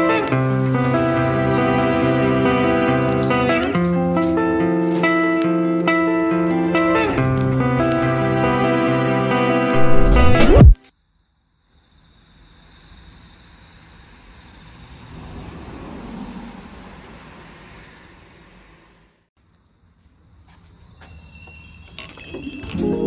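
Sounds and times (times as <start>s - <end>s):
insects chirring: 10.8s - 23.0s.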